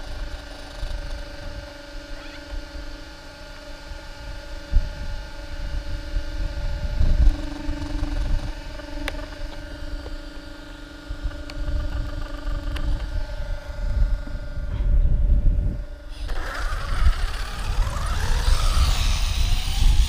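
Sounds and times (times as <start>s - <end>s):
faint steady whine: 0.0s - 20.0s
wind buffeting microphone: 4.1s - 10.0s, 11.0s - 20.0s.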